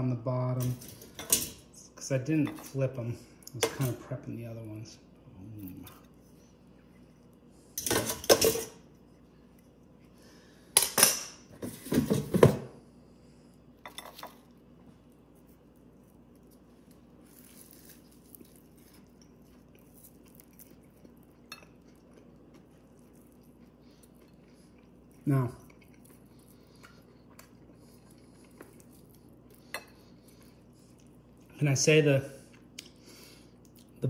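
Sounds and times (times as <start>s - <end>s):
dishes and utensils clattering: 7.8s - 8.8s.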